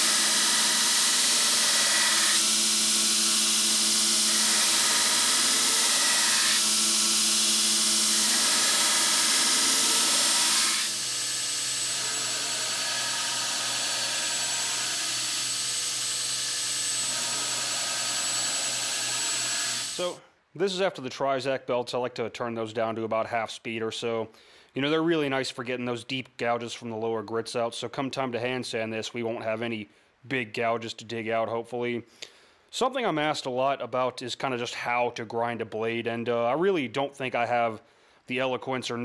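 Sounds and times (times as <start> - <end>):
belt grinder grinding knife blade: 0.0 - 20.1.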